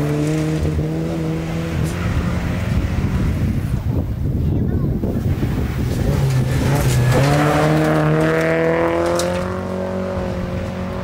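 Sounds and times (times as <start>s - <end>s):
rally car engine at high revs: 0.0s - 3.9s, 5.2s - 11.0s
tyres rushing on loose gravel: 5.2s - 9.4s.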